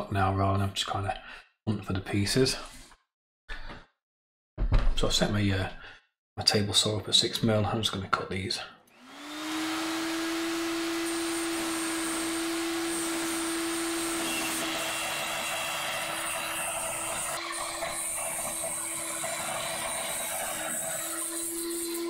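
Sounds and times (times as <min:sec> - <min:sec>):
saw cutting wood: 0:08.9 - 0:22.0
table saw motor whine: 0:08.9 - 0:22.0.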